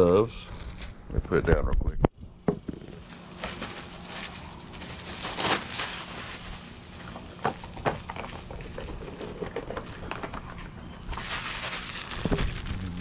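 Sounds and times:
gloves rustling: 3.0 - 7.7, 10.5 - 13.0
plastic wrap crinkling: 3.0 - 13.0.

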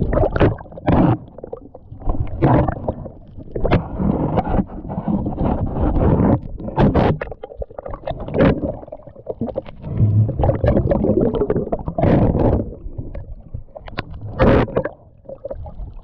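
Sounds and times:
bubbling: 0.0 - 4.5, 6.4 - 16.0
muffled underwater rushing: 0.0 - 16.0
low rumble: 9.8 - 15.1.

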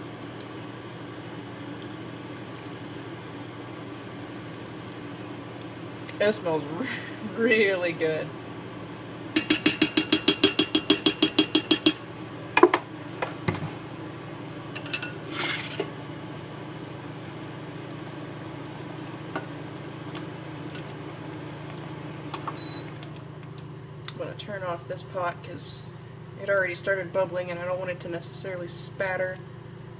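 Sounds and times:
steady low hum: 0.0 - 29.9
spatula knocking on cast iron pot: 9.4 - 12.0.

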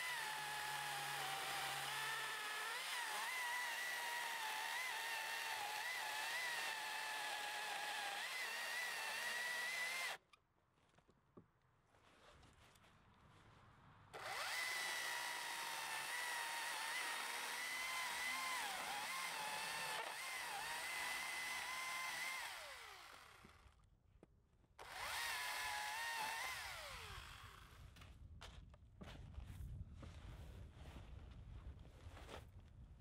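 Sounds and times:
battery chainsaw cutting log: 0.0 - 10.2, 14.2 - 23.7, 24.8 - 27.8.

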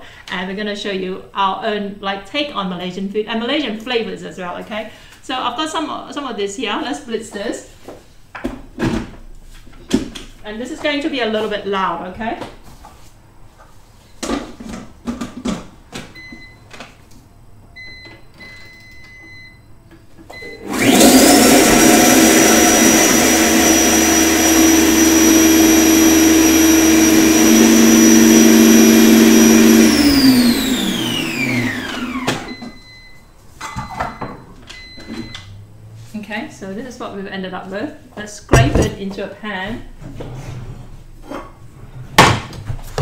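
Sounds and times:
blender motor whining: 20.5 - 32.7.

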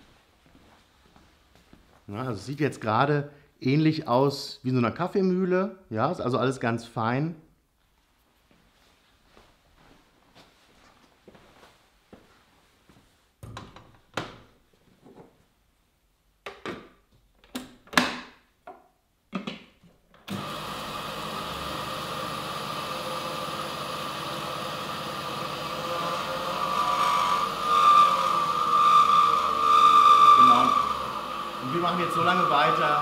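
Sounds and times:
food processor motor grinding: 20.3 - 33.0.

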